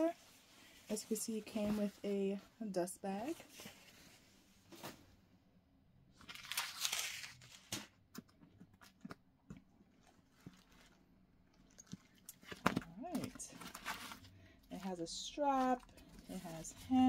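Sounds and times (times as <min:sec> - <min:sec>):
packaging crinkling: 0:06.2 - 0:09.2.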